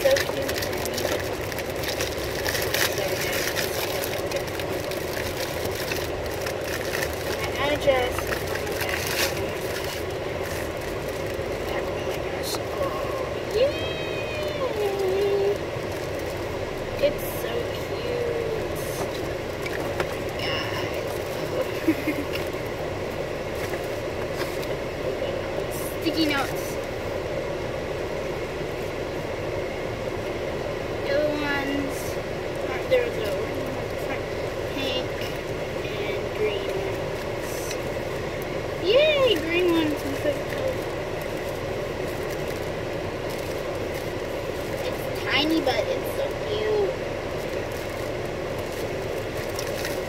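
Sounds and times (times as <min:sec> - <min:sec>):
plastic wrapper crinkling: 0:00.0 - 0:11.7, 0:39.2 - 0:45.0, 0:47.4 - 0:50.0
car cabin noise: 0:00.0 - 0:50.0.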